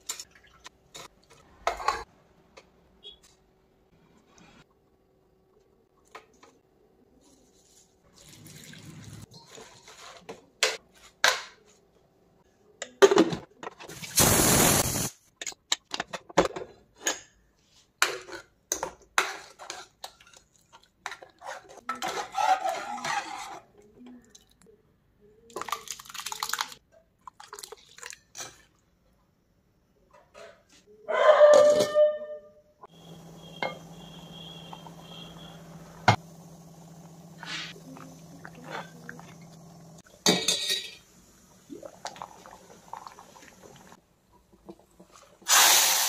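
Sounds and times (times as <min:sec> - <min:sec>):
pressure cooker hiss: 0:14.2 - 0:15.1, 0:32.9 - 0:38.3, 0:45.4 - 0:46.0
metal clinks of pots and utensils: 0:40.2 - 0:41.0
liquid pouring into pot: 0:41.6 - 0:44.0.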